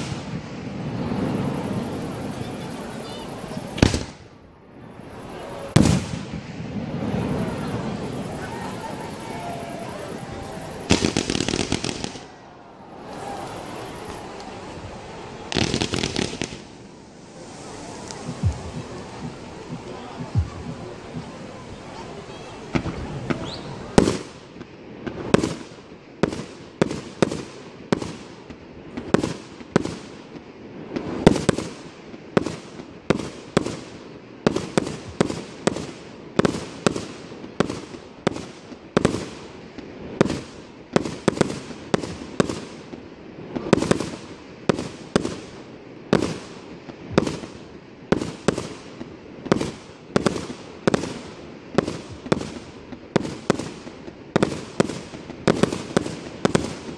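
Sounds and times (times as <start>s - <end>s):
fireworks cake firing: 0.0s - 56.9s.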